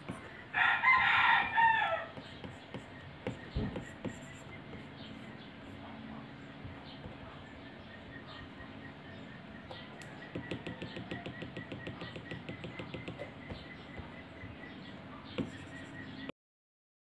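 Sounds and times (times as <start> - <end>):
stylus tapping on glass screen: 2.2 - 5.0, 9.7 - 14.2, 15.4 - 15.8.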